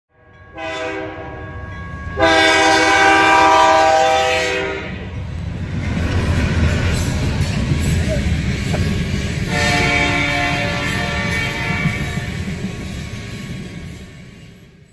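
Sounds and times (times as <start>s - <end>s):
locomotive air horn chord: 0.1s - 5.1s, 9.5s - 12.4s
train rolling rumble: 1.6s - 14.9s.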